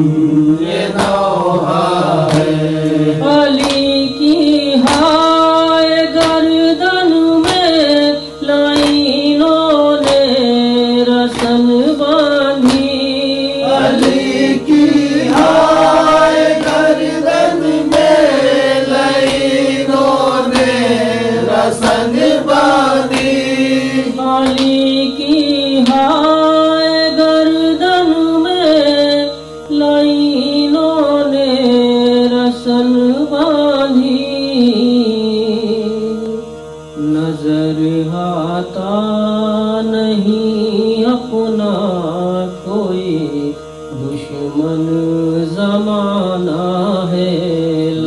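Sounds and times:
man chanting a lament: 13.6 - 24.5.

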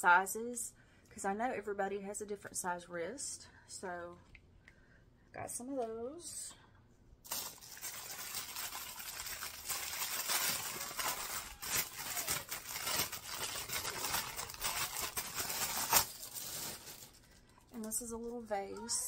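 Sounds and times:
plastic bag crinkling: 7.2 - 17.9.

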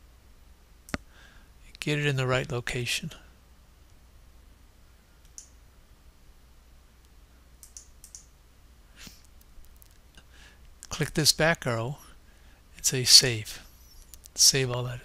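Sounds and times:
low steady hum: 0.0 - 15.0
faint mouse clicks: 5.2 - 5.6, 7.0 - 8.3.

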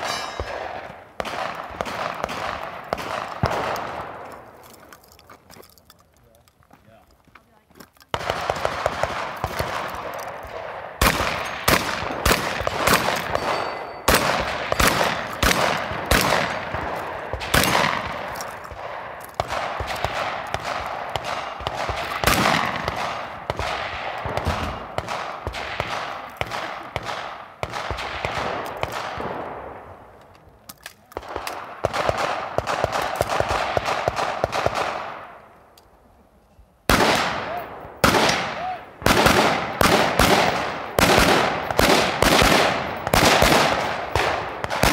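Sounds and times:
gunshots with echo: 0.0 - 4.4, 8.1 - 29.9, 36.9 - 44.9.

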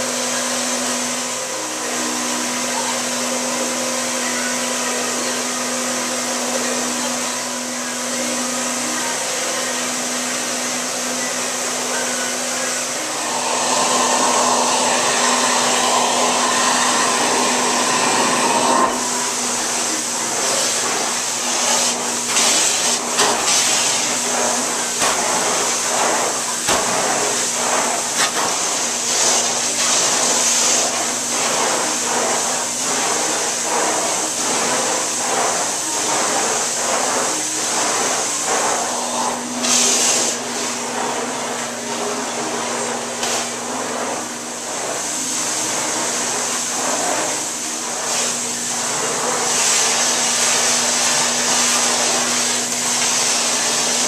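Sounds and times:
extraction vacuum running: 0.0 - 54.0
wand suction on carpet: 13.1 - 54.0.

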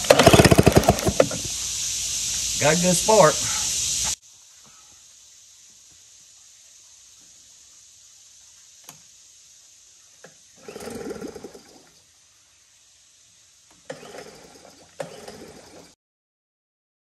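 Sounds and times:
outboard recoil starter pulls: 0.0 - 1.5, 10.6 - 11.6, 13.8 - 15.9.

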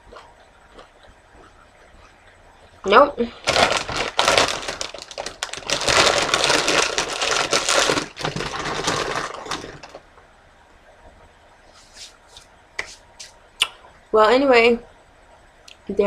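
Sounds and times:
tortilla chips crunched and chewed: 3.4 - 10.0.

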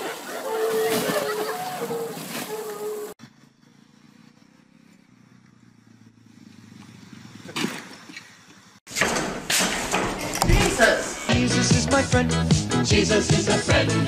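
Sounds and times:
distant small engine humming: 1.9 - 8.8.

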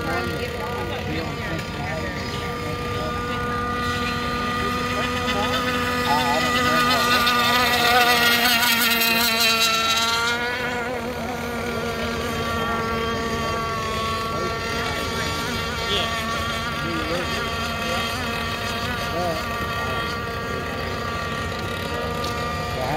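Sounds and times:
model boat engines buzzing: 0.0 - 22.9.

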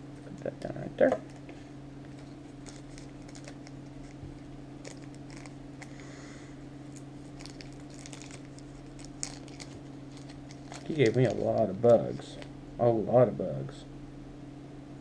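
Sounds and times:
low hum: 0.0 - 15.0
plastic bags crinkling: 1.2 - 6.0, 6.9 - 12.5.

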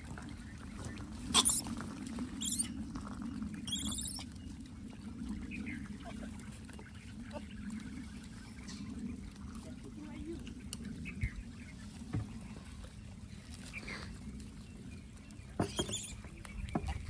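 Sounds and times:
low hum: 0.0 - 17.0
animal squeaks: 1.3 - 1.7, 2.4 - 2.8, 3.7 - 4.2, 15.6 - 16.2.

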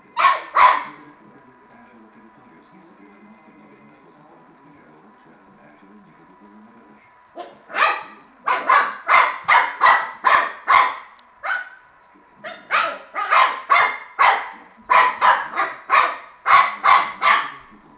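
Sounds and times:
puppy barking: 0.1 - 1.0, 7.4 - 11.8, 12.4 - 17.7.

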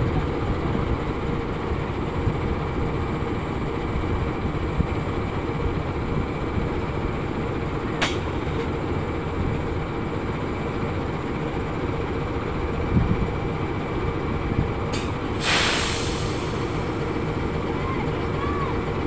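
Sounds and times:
locomotive engine running: 0.0 - 19.0
air hiss: 15.0 - 17.1.

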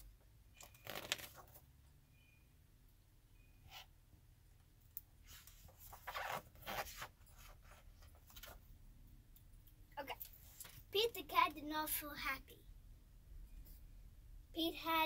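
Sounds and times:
book pages rustling: 0.7 - 1.6, 5.2 - 8.6.

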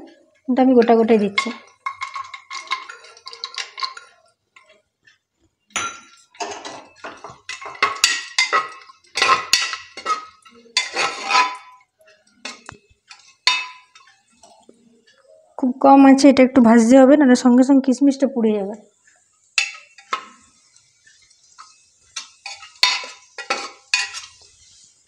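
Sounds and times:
steel bowl and spoon clinking: 0.8 - 4.8, 5.7 - 14.5, 19.5 - 24.9.

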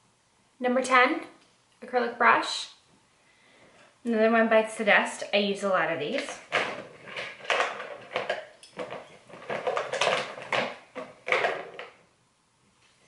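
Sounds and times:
small containers clattering: 6.1 - 12.0.

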